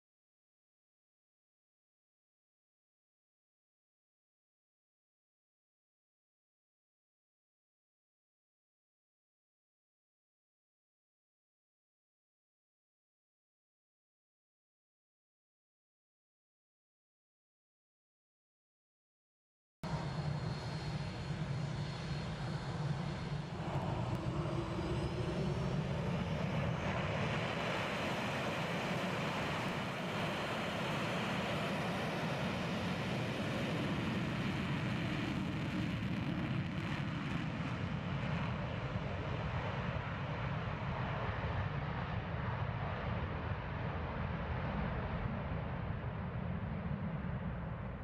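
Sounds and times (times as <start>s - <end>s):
jet engines at takeoff: 19.9s - 48.0s
high whine: 22.3s - 38.8s.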